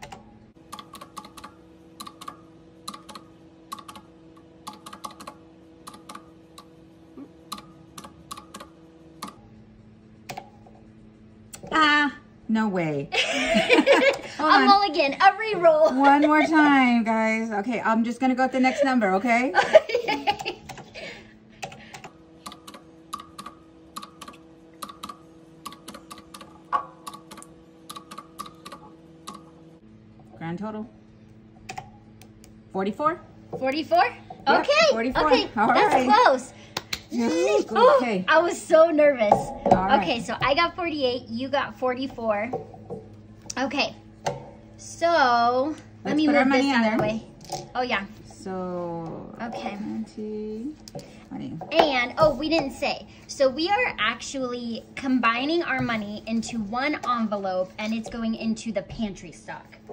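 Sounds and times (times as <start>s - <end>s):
calculator keys clicking: 0.0s - 4.0s, 4.7s - 6.7s, 21.6s - 29.4s.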